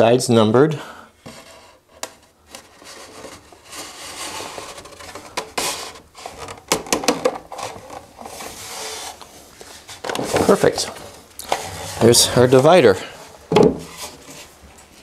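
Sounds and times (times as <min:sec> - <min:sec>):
wood rubbing on wood: 0:07.8 - 0:14.5
sharp wooden knocks: 0:13.5 - 0:13.9.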